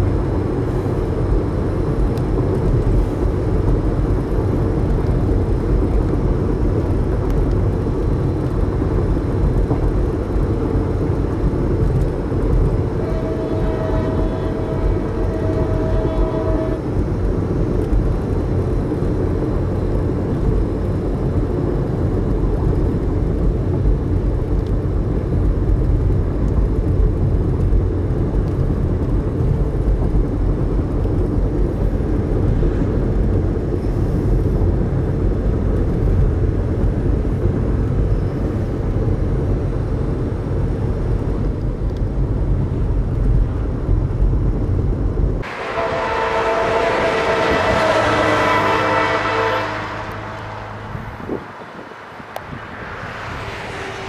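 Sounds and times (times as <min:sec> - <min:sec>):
freight train rumbling past: 0:00.0 - 0:54.0
locomotive air horn: 0:12.7 - 0:17.0, 0:45.4 - 0:52.4.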